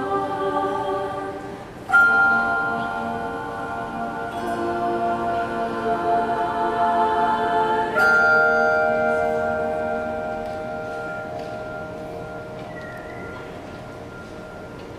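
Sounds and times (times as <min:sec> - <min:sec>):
handbells ringing chords: 0:01.9 - 0:05.3, 0:07.9 - 0:14.9.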